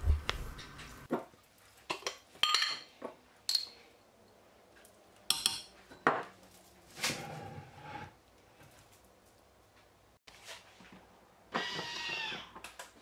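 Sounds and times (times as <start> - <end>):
glass jars clinking on steel bowl: 1.9 - 2.9, 5.3 - 6.2.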